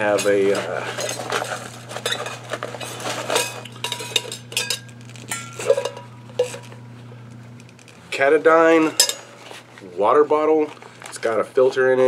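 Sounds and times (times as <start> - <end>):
low steady hum: 0.0 - 12.0
metal cup clinking: 1.0 - 6.8, 8.8 - 9.5.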